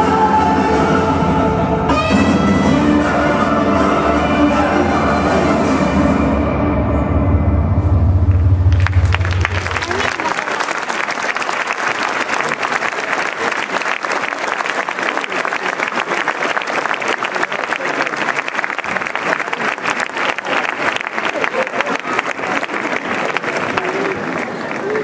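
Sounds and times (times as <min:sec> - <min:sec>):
crowd voices: 0:00.0 - 0:25.0
audience applauding: 0:08.6 - 0:25.0.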